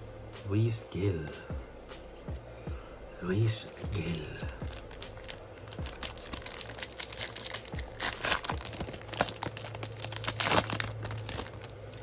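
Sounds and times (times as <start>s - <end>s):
plastic wrapper tearing and crinkling: 3.5s - 12.0s.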